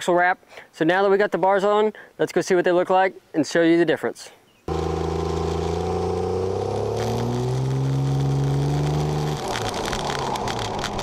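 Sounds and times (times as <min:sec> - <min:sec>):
truck engine and exhaust accelerating: 0:04.7 - 0:11.0.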